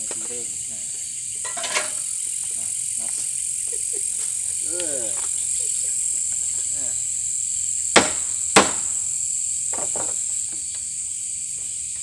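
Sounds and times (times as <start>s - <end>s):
crickets chirping: 0.0s - 12.0s
sharp knocks: 7.9s - 9.0s.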